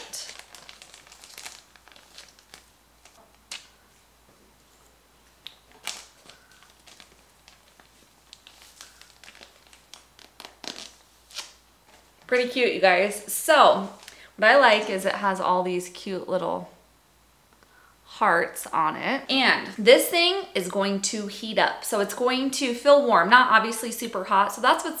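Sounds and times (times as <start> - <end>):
sharp crackles: 0.0 - 3.8, 5.4 - 11.6
plastic bag crinkling: 0.0 - 4.0, 5.2 - 12.7.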